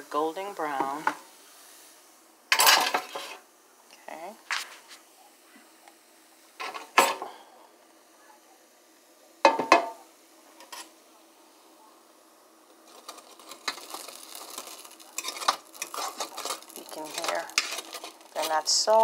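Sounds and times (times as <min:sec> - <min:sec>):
fork scraping crispy food: 0:12.9 - 0:18.8.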